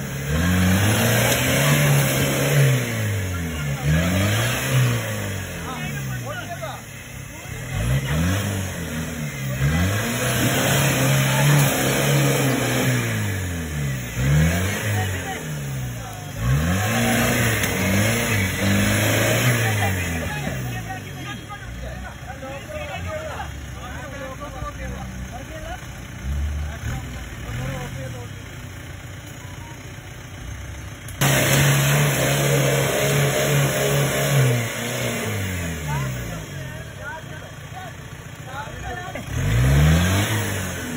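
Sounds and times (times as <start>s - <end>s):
engine revving hard: 0.0s - 6.8s, 7.5s - 21.4s, 31.2s - 37.0s, 38.9s - 40.9s.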